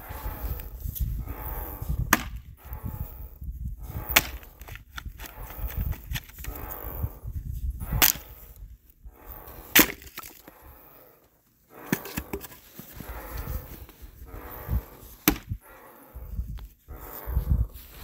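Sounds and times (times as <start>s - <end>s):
axe chopping firewood: 2.1s - 2.4s, 4.1s - 4.8s, 8.0s - 8.2s, 9.8s - 10.4s, 15.2s - 15.6s.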